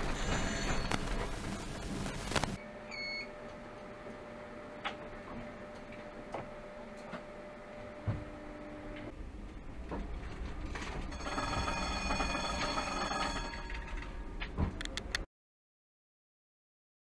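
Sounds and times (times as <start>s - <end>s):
tram warning bell ringing: 0.0s - 1.0s, 11.1s - 14.4s.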